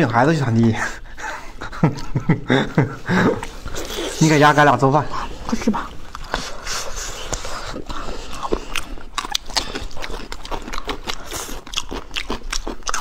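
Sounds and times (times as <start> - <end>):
biting and chewing ribs: 5.8 - 13.0.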